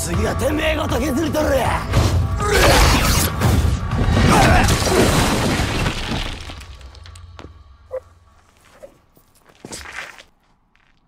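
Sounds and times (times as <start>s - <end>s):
stone shattering and debris crashing: 4.1s - 7.1s.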